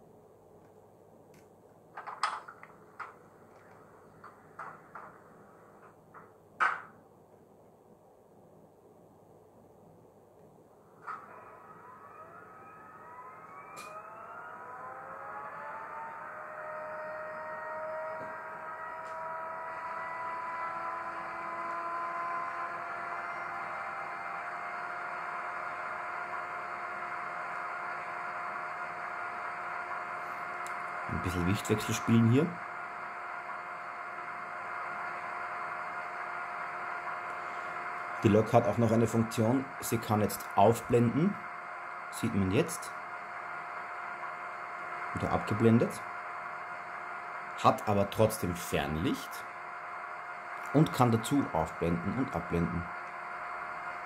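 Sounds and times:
faint hum: 0.0s - 54.0s
clicks and knocks from small speaker: 6.2s - 7.0s
heater fan hiss: 15.3s - 54.0s.

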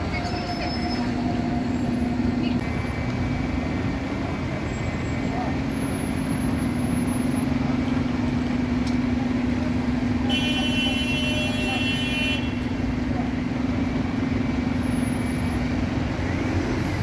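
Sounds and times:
bus engine droning: 0.0s - 17.0s
vehicle horn: 10.3s - 12.7s.

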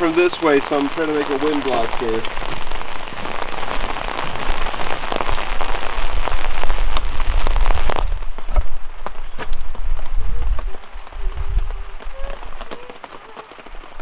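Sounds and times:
rain pattering: 0.0s - 14.0s
wind rumble on microphone: 2.3s - 13.0s.

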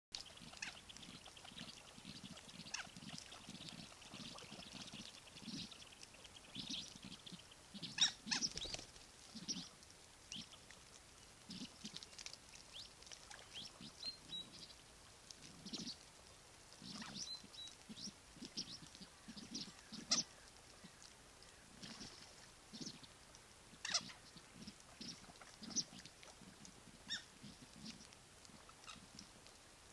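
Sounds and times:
ducks calling: 19.3s - 20.3s.

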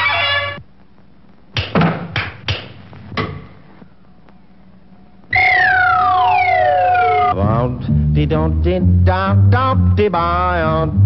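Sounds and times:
tone sliding down in pitch: 5.3s - 7.4s
steady held note: 5.3s - 7.5s.

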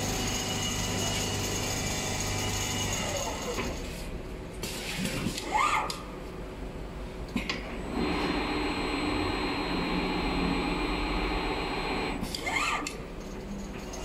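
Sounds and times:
quilting machine humming: 7.8s - 12.8s.

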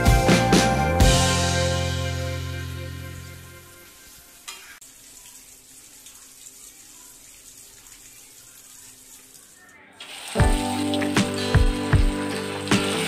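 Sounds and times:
background music: 0.0s - 4.0s, 10.4s - 13.0s.

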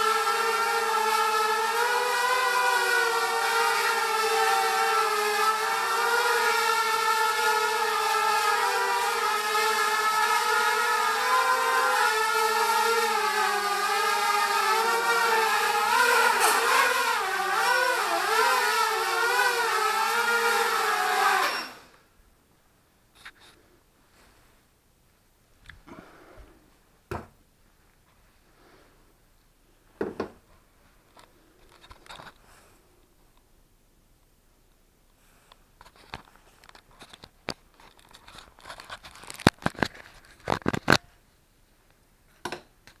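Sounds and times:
drone motors whining: 0.0s - 22.0s.

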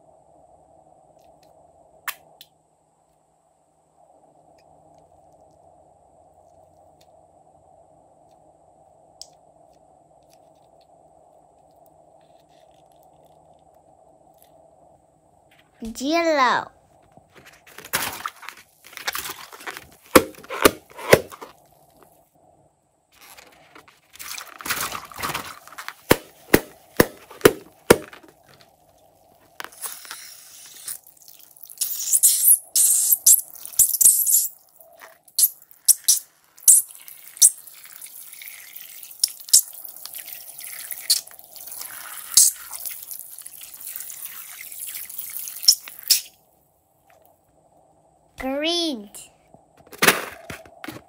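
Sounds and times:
rubber balloon clicks and taps: 20.1s - 21.5s, 26.0s - 28.3s
liquid squirting and dripping: 29.7s - 34.6s, 35.3s - 46.3s.

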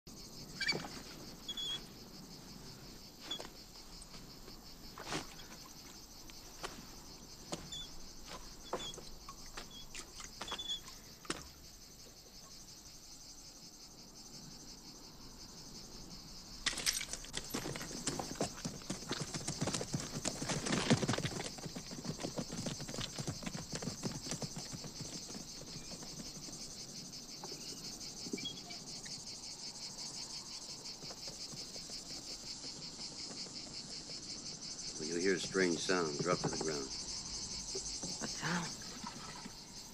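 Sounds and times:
insects chirring: 0.1s - 39.9s
horse hoofbeats: 17.0s - 27.9s, 30.5s - 36.9s.

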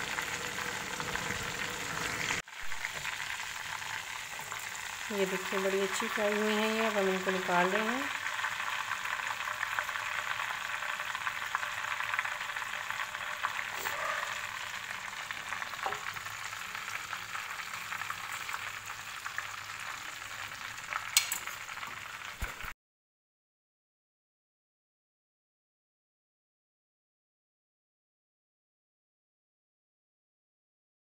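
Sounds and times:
oil sizzling while deep-frying: 0.0s - 22.8s.

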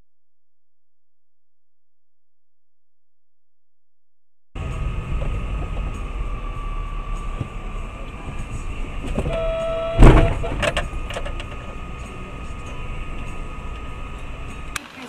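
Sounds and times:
loud collision impact: 4.6s - 11.9s
vehicle road noise: 4.6s - 15.0s
car horn blast: 8.5s - 13.0s.

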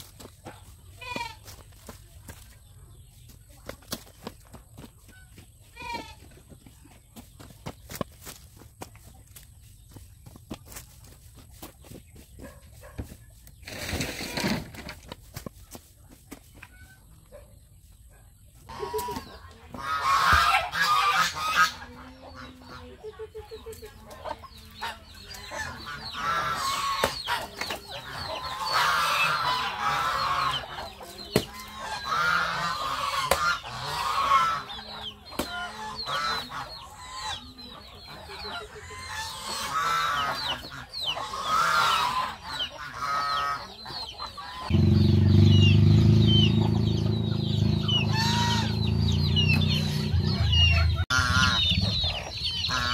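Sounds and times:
chickens calling: 0.0s - 52.9s
hens clucking: 0.0s - 52.9s
geese honking: 18.7s - 23.0s, 24.2s - 52.9s.

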